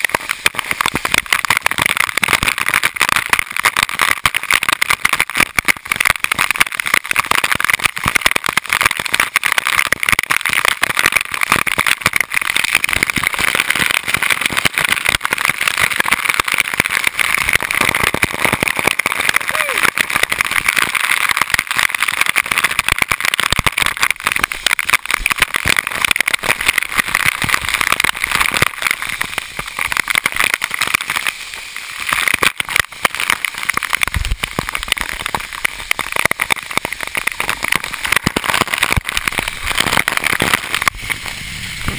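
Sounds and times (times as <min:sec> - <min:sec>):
waterfall rushing: 0:18.4 - 0:20.6, 0:34.0 - 0:41.9.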